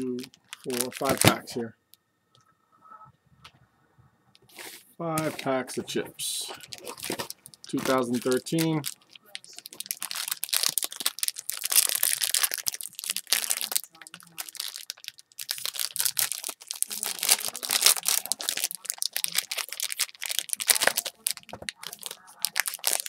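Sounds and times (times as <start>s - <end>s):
foil wrappers crinkling and tearing: 0.0s - 1.6s, 6.4s - 23.0s.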